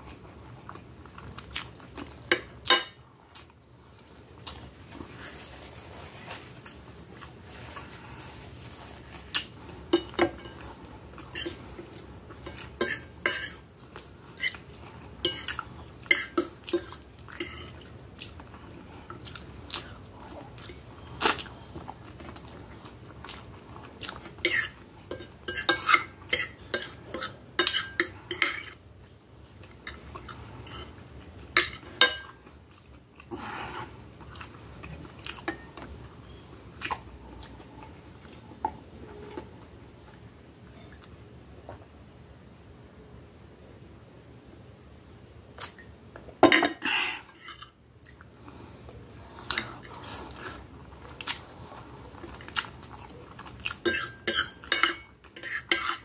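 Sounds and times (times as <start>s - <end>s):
chewing: 0.0s - 2.5s, 8.8s - 25.7s, 28.0s - 38.5s, 47.3s - 56.0s.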